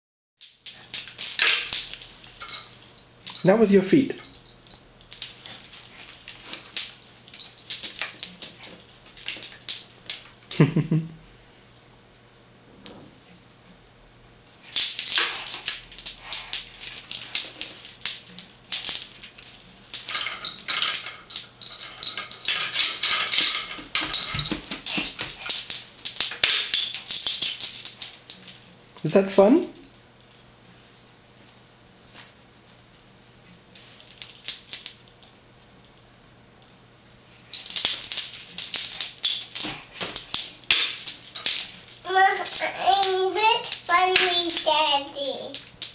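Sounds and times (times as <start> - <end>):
wooden beads rattling and clacking: 0.4 - 10.7, 14.6 - 28.7, 33.8 - 35.3, 37.4 - 45.9
child's voice: 42.1 - 45.6.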